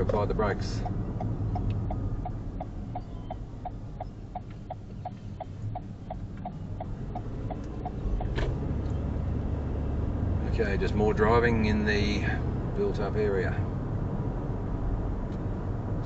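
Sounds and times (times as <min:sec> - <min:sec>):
turn signal ticking: 0:00.0 - 0:09.0
car engine and road noise: 0:00.0 - 0:16.0.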